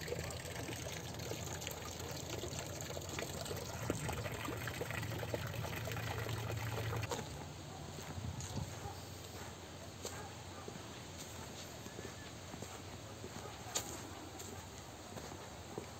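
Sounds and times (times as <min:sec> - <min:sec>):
water trickling into pool: 0:00.0 - 0:07.3.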